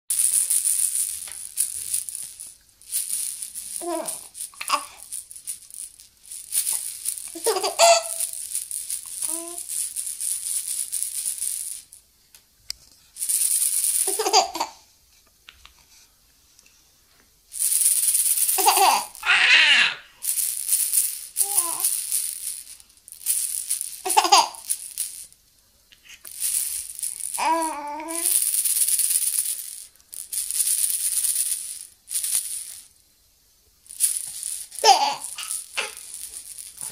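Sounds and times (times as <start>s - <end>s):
rattle ball rattling: 0.1s - 12.1s, 12.7s - 14.8s, 17.4s - 33.0s, 33.8s - 36.9s
baby vocal sounds: 3.8s - 5.1s, 18.6s - 20.1s, 21.4s - 21.9s, 27.4s - 28.3s, 34.8s - 36.0s
baby laughing: 7.4s - 8.2s, 14.1s - 14.8s, 18.6s - 20.0s, 24.1s - 24.6s, 34.8s - 36.0s.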